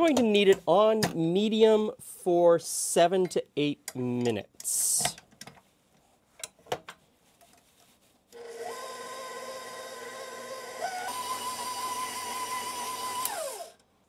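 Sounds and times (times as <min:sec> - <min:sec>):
stand mixer motor whine: 0:08.4 - 0:13.7.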